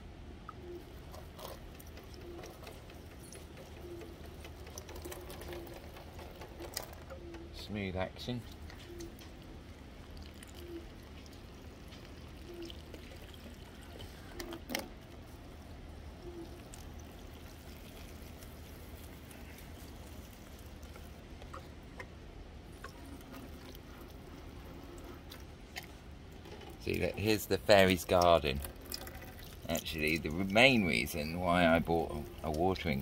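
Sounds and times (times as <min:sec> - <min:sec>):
water showering onto soil: 0:16.5 - 0:21.2.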